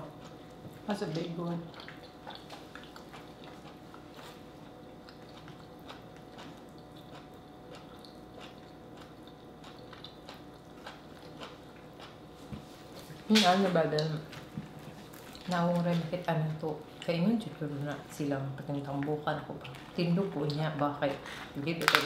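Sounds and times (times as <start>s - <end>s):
people chewing seafood: 0.0s - 13.2s.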